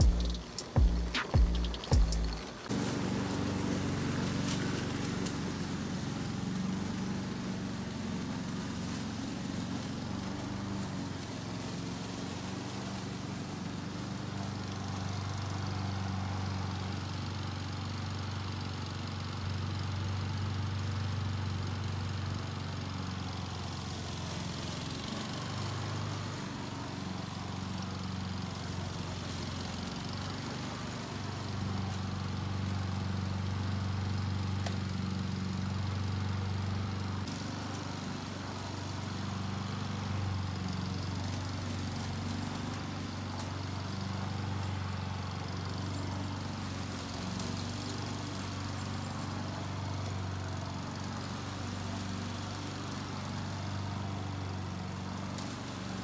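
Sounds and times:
lawn mower engine running: 0:00.0 - 0:56.0.

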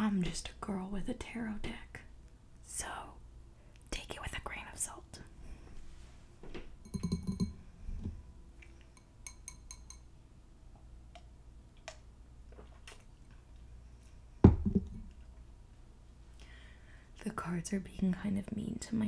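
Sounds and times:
light clinking taps: 0:06.8 - 0:10.1
low knock: 0:14.4 - 0:15.0.

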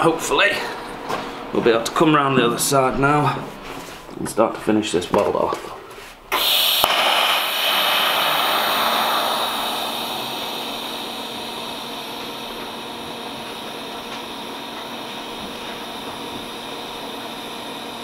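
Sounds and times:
faint hum: 0:05.0 - 0:18.0
welding arc hissing: 0:06.3 - 0:18.0.

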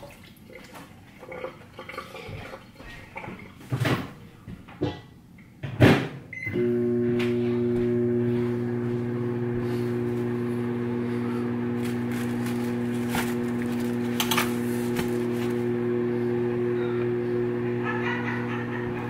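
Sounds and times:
kitchen appliance humming: 0:06.4 - 0:19.0.

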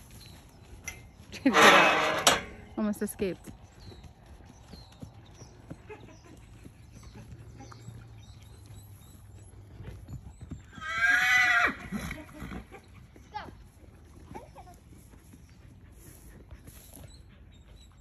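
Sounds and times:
horse whinnying: 0:01.5 - 0:02.4, 0:10.7 - 0:12.7.

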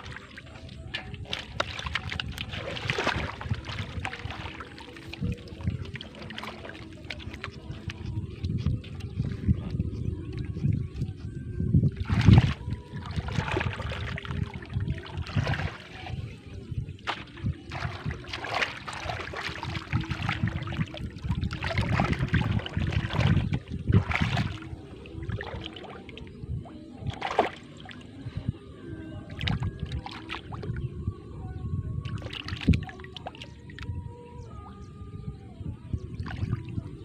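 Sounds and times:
splashing in muddy water: 0:00.0 - 0:11.2, 0:11.8 - 0:28.2, 0:29.2 - 0:30.9, 0:32.0 - 0:33.9, 0:36.1 - 0:37.0.

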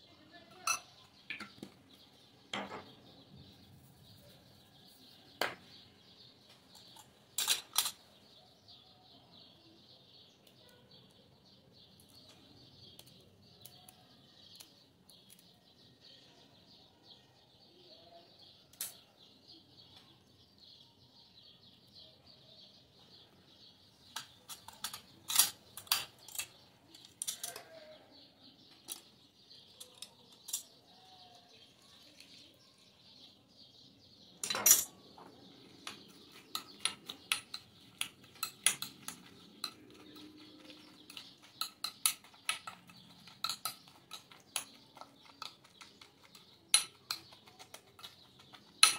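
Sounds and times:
metal spoon clinking glass bowl: 0:00.6 - 0:01.5, 0:34.4 - 0:34.9, 0:35.8 - 0:48.9.

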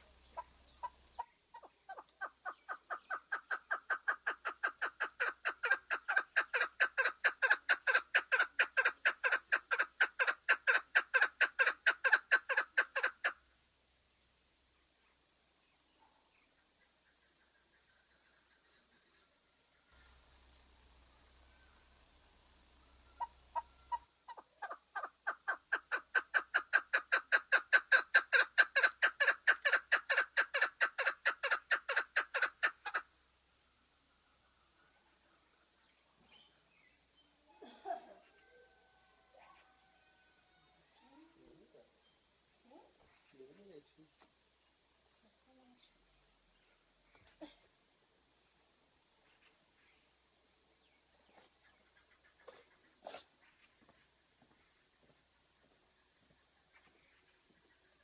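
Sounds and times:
partridge calling rapid chuk notes: 0:00.0 - 0:13.4, 0:22.9 - 0:33.1.

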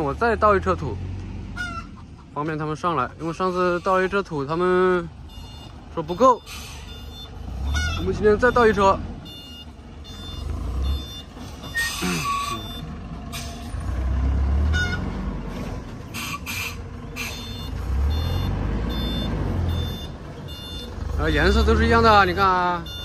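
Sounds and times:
diesel engine running: 0:00.0 - 0:23.0
truck reversing alarm: 0:05.0 - 0:15.4, 0:16.0 - 0:23.0.

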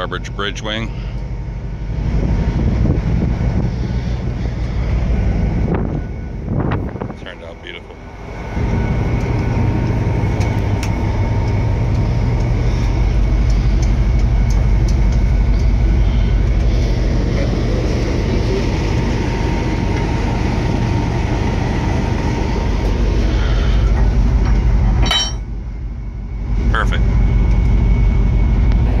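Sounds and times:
faint steady whine: 0:00.0 - 0:29.0
ship deck low rumble: 0:00.0 - 0:29.0.

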